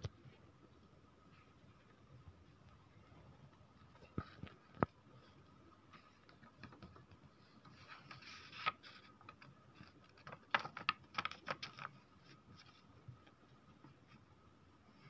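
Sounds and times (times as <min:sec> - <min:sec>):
paper rustling and clicking: 0:05.9 - 0:14.2.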